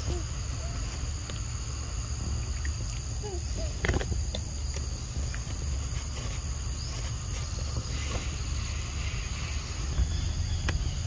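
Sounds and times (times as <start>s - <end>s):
insects droning: 0.0s - 11.0s
low rumble: 9.8s - 11.0s.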